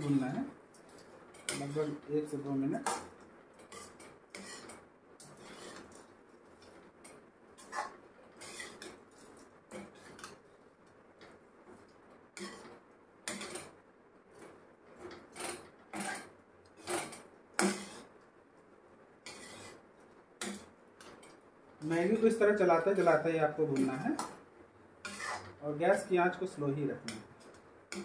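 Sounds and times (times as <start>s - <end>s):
metal spatula scraping a pan: 1.3s - 2.1s, 3.6s - 10.4s, 12.4s - 13.8s, 15.0s - 18.1s, 19.2s - 19.8s, 20.4s - 21.3s, 25.0s - 25.6s, 27.1s - 28.0s.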